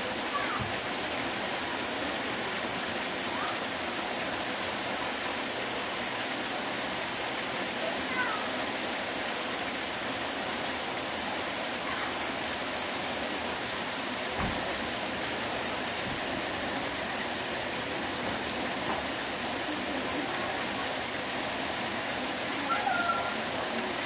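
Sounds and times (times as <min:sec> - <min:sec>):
running water rushing: 0:00.0 - 0:24.0
low thump: 0:14.4 - 0:14.7.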